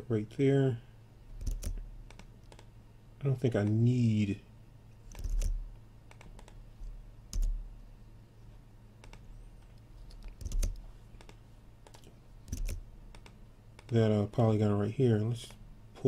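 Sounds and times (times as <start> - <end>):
low electrical hum: 0.0 - 16.0
keyboard keys clicking: 1.4 - 2.7, 5.1 - 6.6, 7.3 - 7.6, 10.1 - 14.0.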